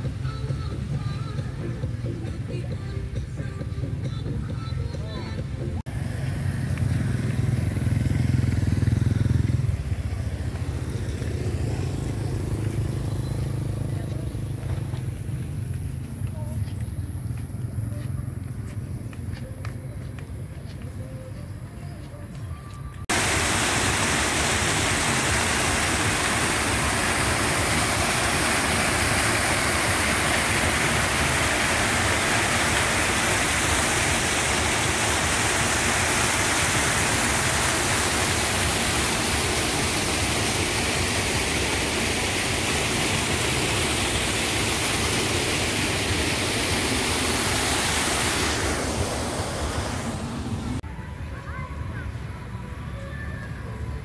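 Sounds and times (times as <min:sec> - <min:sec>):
water rushing through spillway: 0:05.9 - 0:15.2, 0:23.1 - 0:50.8.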